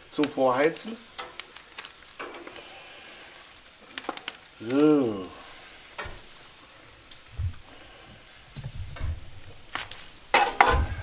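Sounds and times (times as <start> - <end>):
peppers sizzling on a grill: 0.0 - 11.0
metal tongs scraping a grate: 10.0 - 11.0.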